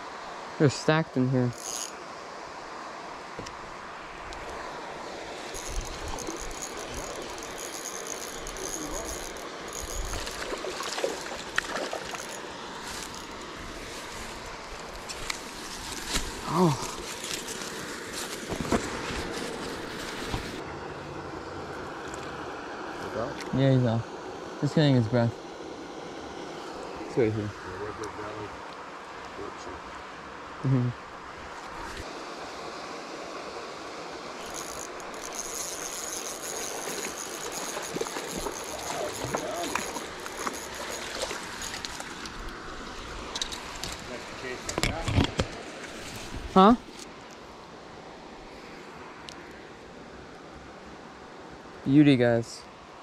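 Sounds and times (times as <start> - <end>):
background hiss: 0.0 - 20.6
outdoor noise: 0.0 - 53.0
fishing reel whirring: 1.5 - 2.0, 5.4 - 13.4, 34.4 - 42.5
handling noise: 5.5 - 20.6, 34.4 - 42.4.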